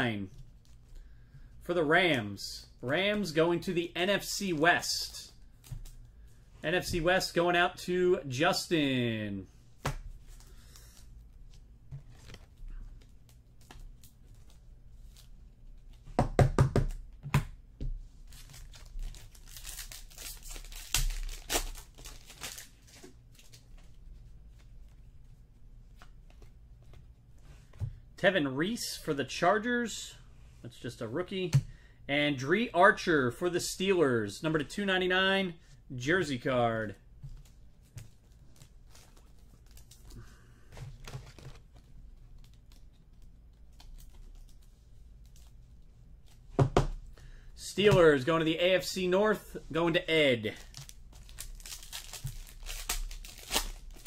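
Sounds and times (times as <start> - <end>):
plastic sleeves rustling: 9.5 - 16.2, 16.9 - 27.8, 35.5 - 54.0.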